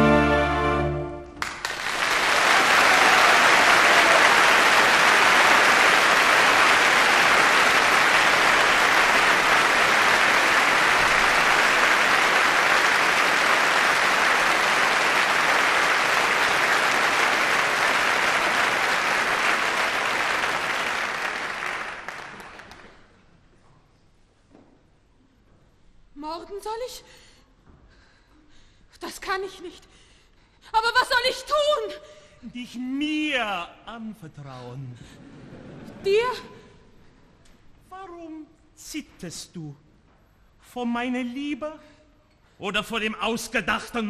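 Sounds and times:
audience applauding: 1.4s - 23.2s.

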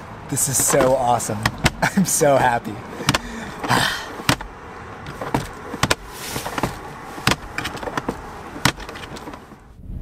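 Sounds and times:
glove box lid clicking: 0.4s - 2.0s, 2.9s - 9.6s.

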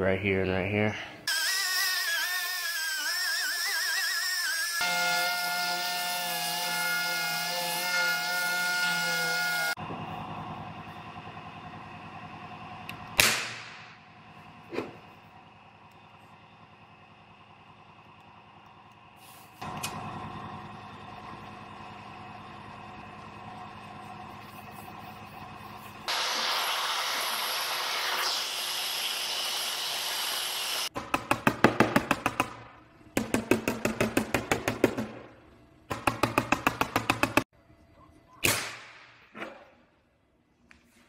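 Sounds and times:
hiss: 19.2s - 19.6s, 26.0s - 30.9s.

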